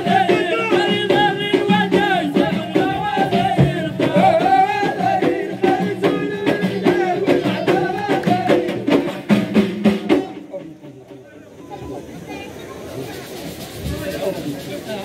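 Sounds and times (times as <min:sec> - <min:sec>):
men singing: 0:00.0 - 0:10.6
frame drums: 0:00.0 - 0:15.0.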